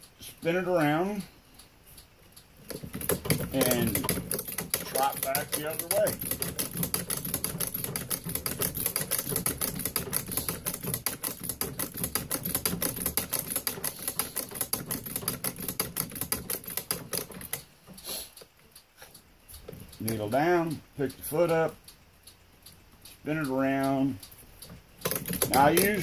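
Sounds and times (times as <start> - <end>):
sewing machine needle clatter: 2.7 - 17.7, 25.0 - 26.0.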